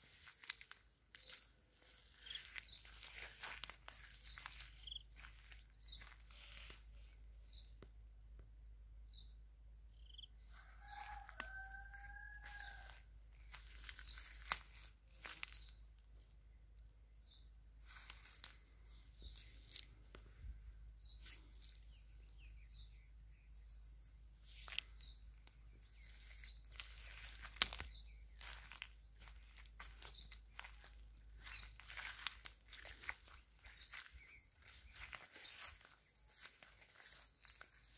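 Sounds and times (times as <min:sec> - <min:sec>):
small birds chirping: 0:00.0 - 0:37.9
rooster crowing: 0:10.4 - 0:13.2.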